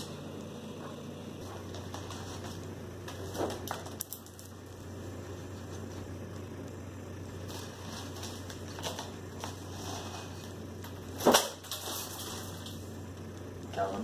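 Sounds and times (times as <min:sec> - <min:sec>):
low room hum: 0:00.0 - 0:14.0
newspaper pages rustling: 0:01.4 - 0:04.0.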